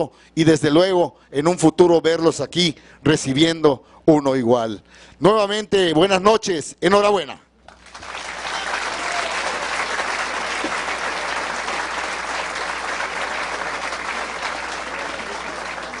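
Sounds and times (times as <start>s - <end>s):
audience applause: 7.8s - 16.0s.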